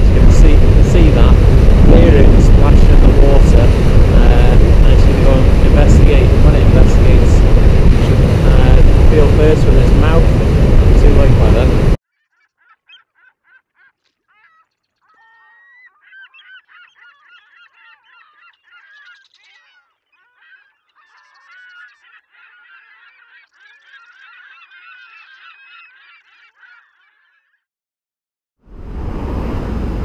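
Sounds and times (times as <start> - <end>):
birds honking: 12.1 - 27.6.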